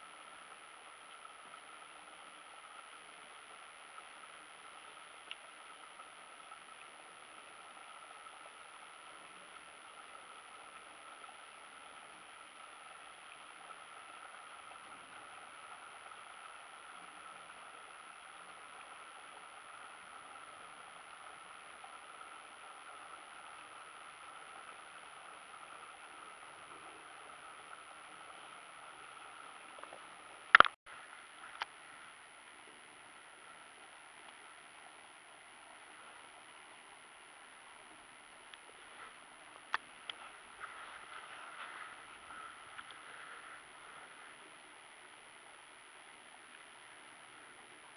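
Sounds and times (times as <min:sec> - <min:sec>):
faint outdoor hiss: 0:00.0 - 0:47.9
faint click: 0:04.9 - 0:05.5, 0:29.7 - 0:30.8, 0:38.5 - 0:38.7.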